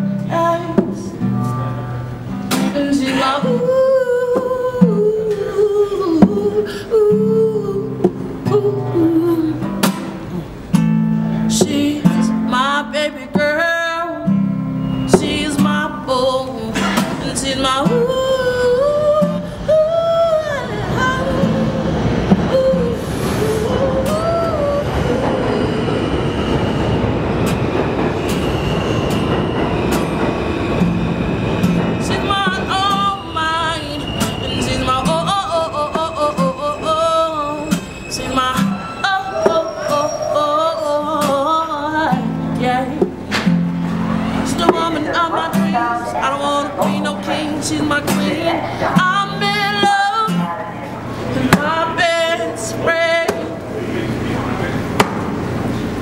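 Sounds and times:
strummed acoustic guitar: 0.0 - 25.8, 27.4 - 56.0
subway train wheels rumbling: 0.0 - 56.0
high squealing tone: 14.5 - 42.7.

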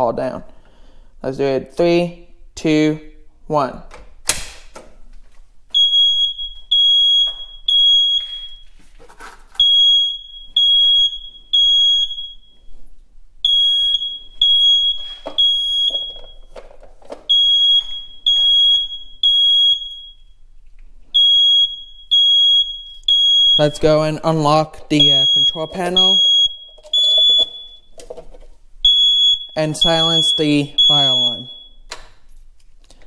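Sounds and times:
fire alarm beeping: 5.7 - 8.8, 9.6 - 12.8, 13.4 - 16.6, 17.3 - 20.4, 21.1 - 24.3, 24.9 - 28.0, 28.8 - 31.9.

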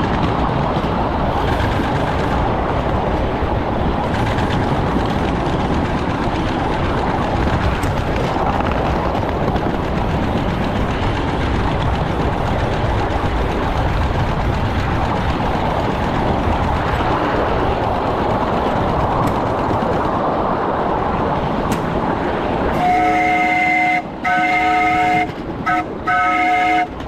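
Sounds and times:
steam locomotive running: 0.0 - 27.0
steam whistle chord: 22.8 - 26.9.

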